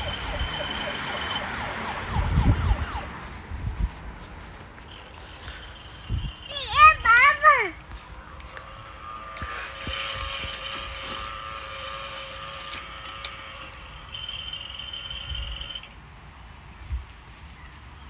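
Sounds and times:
toy helicopter electronic whir: 0.0 - 3.1, 4.7 - 16.1.

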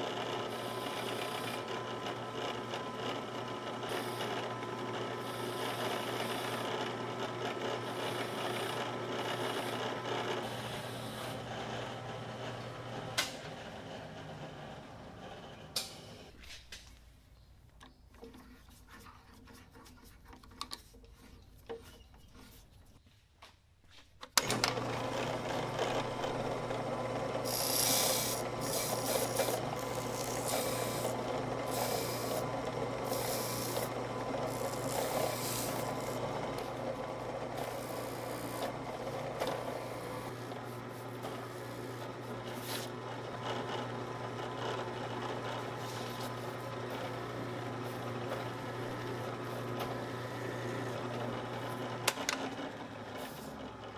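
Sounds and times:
drill press motor humming: 0.0 - 16.4, 24.4 - 53.9
cutter rasping through sandpaper: 27.4 - 36.3.

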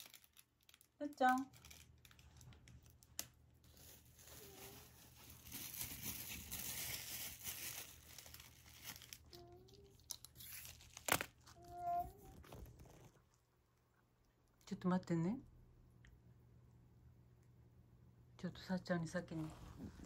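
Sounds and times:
paper crinkling and rustling: 0.0 - 13.3.

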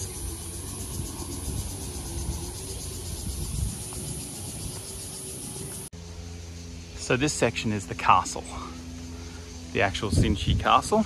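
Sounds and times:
insect chorus shrilling: 0.0 - 11.0.

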